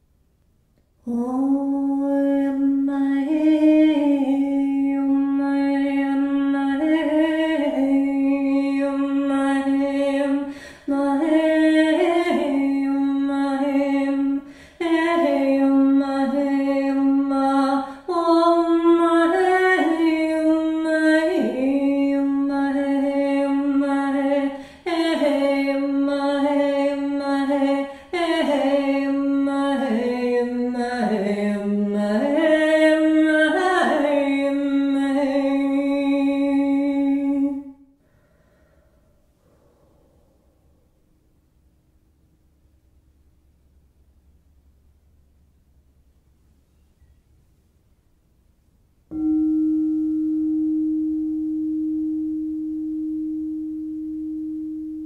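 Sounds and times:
woman singing wordless tones: 0:01.0 - 0:37.9.

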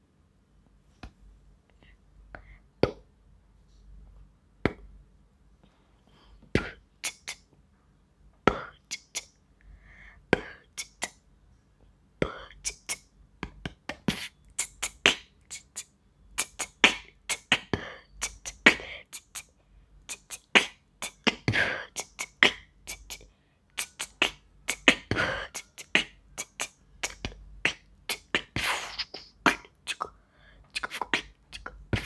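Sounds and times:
beatboxing clicks and pops: 0:02.4 - 0:03.1, 0:04.6 - 0:04.9, 0:06.5 - 0:07.5, 0:08.5 - 0:09.4, 0:10.3 - 0:11.2, 0:12.2 - 0:23.2, 0:23.8 - 0:32.0
beatboxing hissing: 0:06.6 - 0:07.5, 0:08.5 - 0:09.4, 0:10.4 - 0:11.2, 0:12.2 - 0:13.1, 0:13.7 - 0:32.0.

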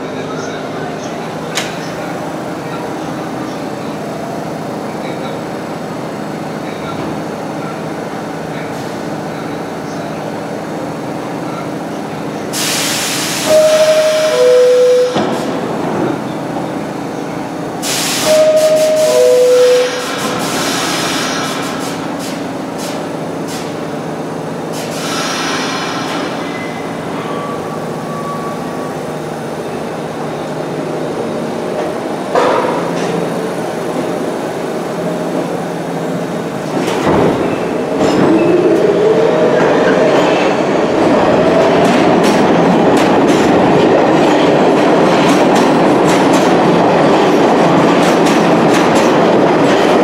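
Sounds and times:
steady low train hum: 0:00.0 - 0:50.0
air hissing: 0:12.5 - 0:13.5, 0:17.8 - 0:19.1, 0:19.8 - 0:23.8, 0:24.7 - 0:26.8.

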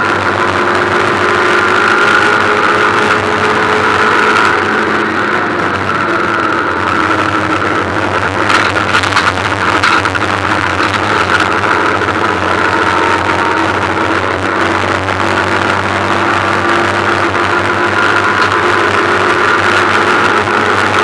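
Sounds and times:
race car engine running hard: 0:00.0 - 0:21.0.

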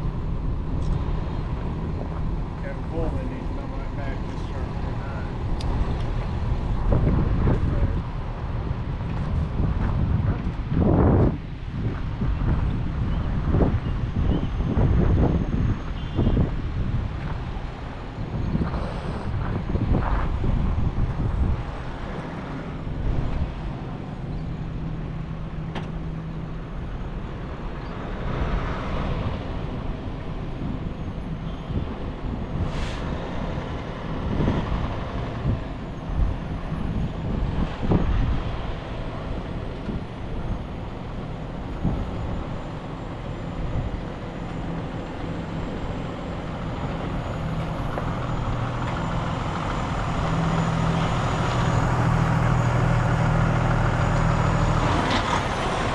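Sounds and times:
diesel truck engine running: 0:33.2 - 0:55.9.

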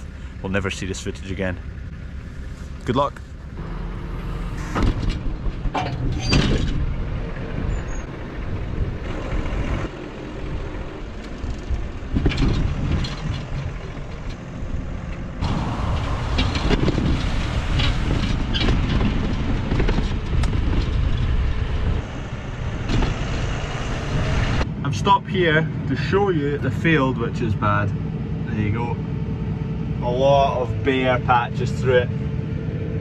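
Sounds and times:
wind on microphone: 0:06.2 - 0:24.6.

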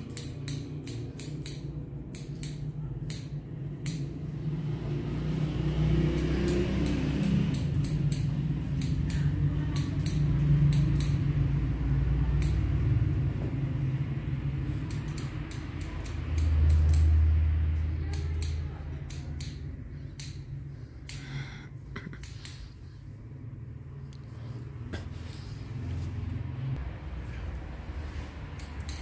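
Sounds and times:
scissors snipping hair: 0:00.0 - 0:04.7, 0:05.8 - 0:22.9, 0:28.1 - 0:29.0.

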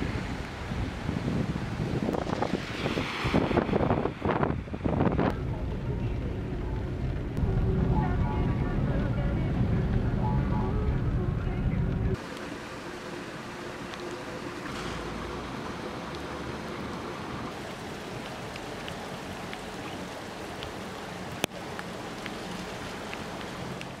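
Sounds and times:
rain: 0:00.0 - 0:24.0
running floodwater: 0:12.2 - 0:24.0.

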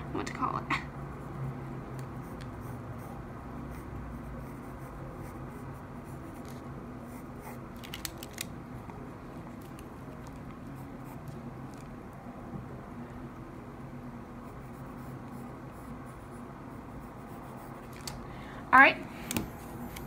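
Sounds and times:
low steady hum: 0:00.0 - 0:20.0
pencil scratching on paper: 0:00.9 - 0:07.6, 0:14.4 - 0:18.0.

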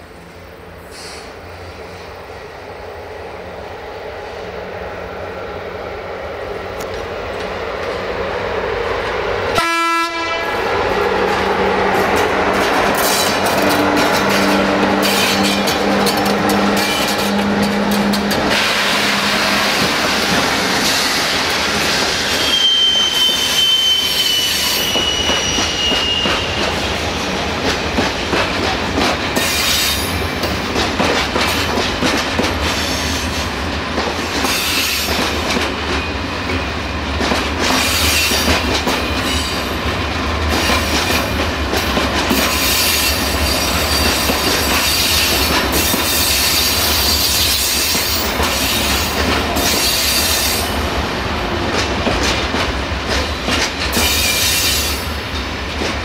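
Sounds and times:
train wheels clattering over rail joints: 0:11.3 - 0:22.5, 0:24.9 - 0:50.6, 0:51.6 - 0:56.0
high wheel squeal: 0:21.8 - 0:26.8.

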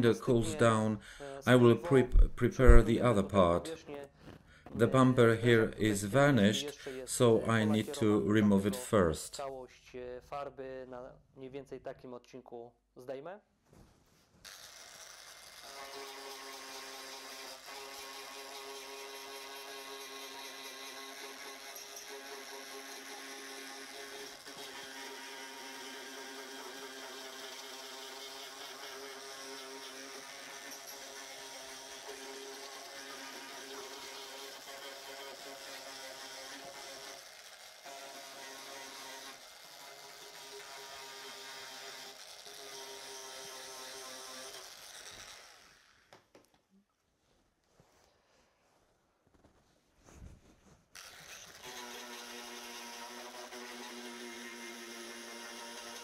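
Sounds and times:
rotary tool sanding whirring: 0:14.4 - 0:46.3, 0:50.9 - 0:56.0
die grinder motor whine: 0:14.5 - 0:46.2, 0:51.0 - 0:56.0.

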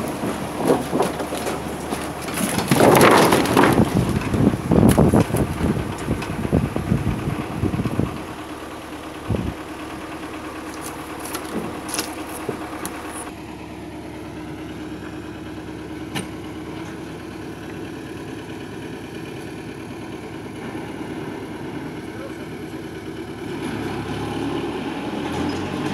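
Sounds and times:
wooden boards clattering: 0:00.0 - 0:06.5, 0:10.6 - 0:13.3
tractor engine idling: 0:00.0 - 0:25.9.

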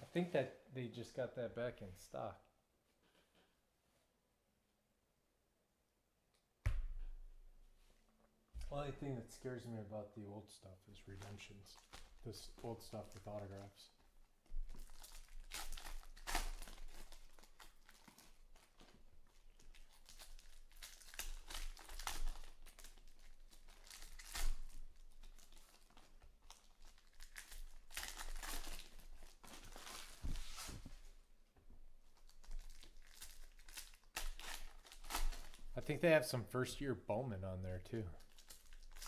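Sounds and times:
foil wrappers crinkling and tearing: 0:11.0 - 0:13.9, 0:14.5 - 0:30.8, 0:32.1 - 0:35.8, 0:38.2 - 0:39.0.

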